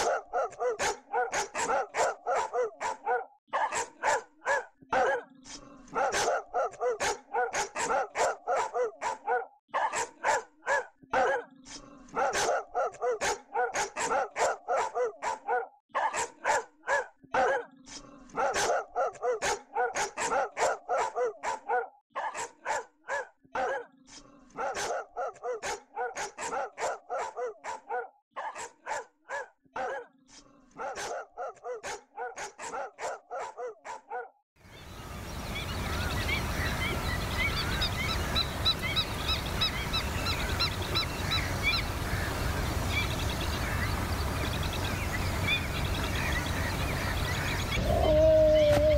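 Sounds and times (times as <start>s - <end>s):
dogs barking rapidly: 0.0s - 34.3s, 35.2s - 48.9s.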